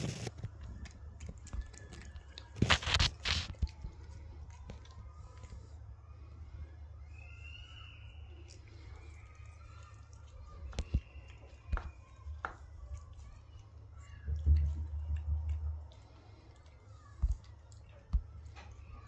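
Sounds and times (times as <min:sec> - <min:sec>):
cat chewing grass: 0:00.0 - 0:06.3, 0:08.3 - 0:13.7, 0:14.3 - 0:19.0.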